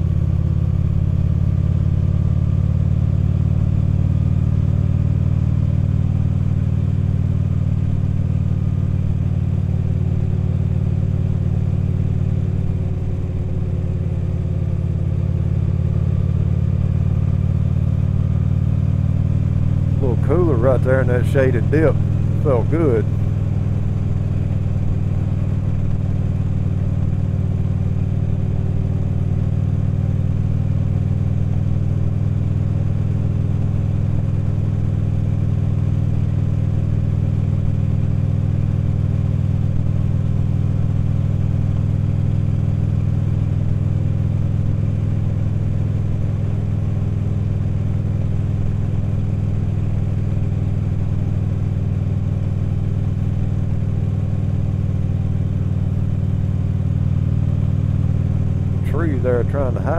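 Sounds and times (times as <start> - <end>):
motorcycle engine running: 0.0 - 59.9.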